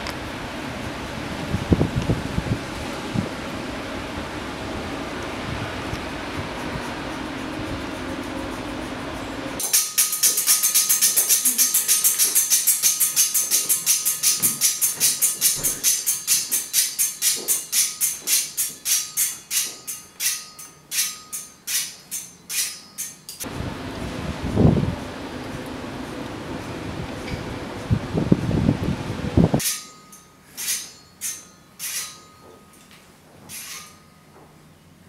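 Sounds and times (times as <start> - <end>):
faint motor whine: 0.0 - 9.6
metallic jingles rattling: 9.6 - 23.4.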